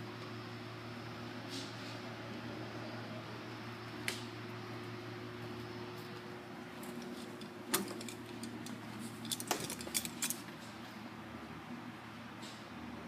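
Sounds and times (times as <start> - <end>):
steady low hum: 0.0 - 13.0
metallic clinks and jingling: 9.2 - 10.4.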